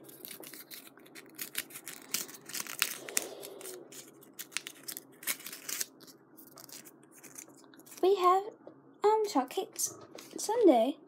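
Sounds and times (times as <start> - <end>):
plastic packaging crinkling: 0.0 - 8.1.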